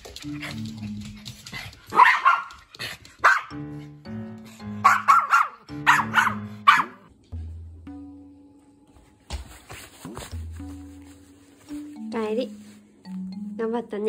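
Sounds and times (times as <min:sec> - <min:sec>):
small dog barking: 0:01.9 - 0:02.6, 0:03.2 - 0:03.5, 0:04.8 - 0:07.1
background music with bass: 0:03.6 - 0:08.8.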